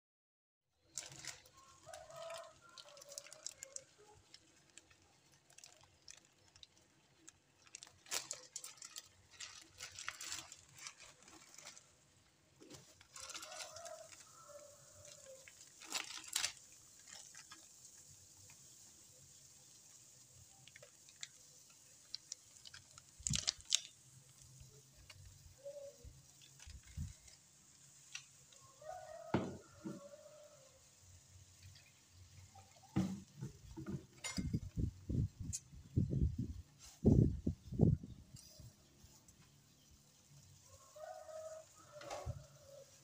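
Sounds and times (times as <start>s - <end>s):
water heating in a pot: 0.8s - 10.6s, 11.8s - 35.7s.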